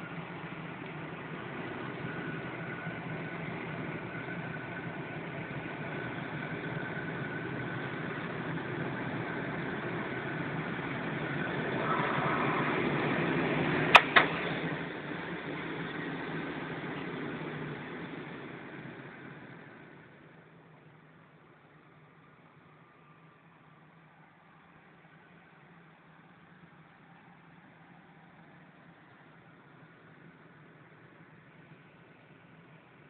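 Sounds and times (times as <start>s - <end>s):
sharp clicks: 13.9s - 14.4s.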